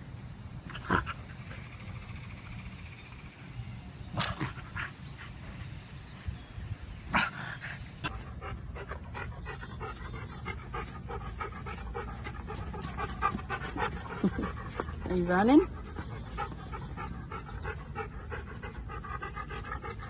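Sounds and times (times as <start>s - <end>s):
dog panting: 7.1s - 20.0s.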